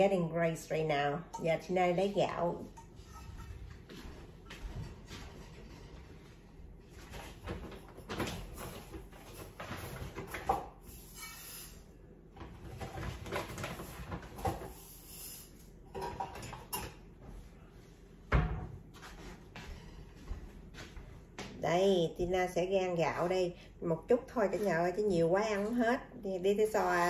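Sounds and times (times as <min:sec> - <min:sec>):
cookware knocking and clattering: 0:15.9 - 0:17.0.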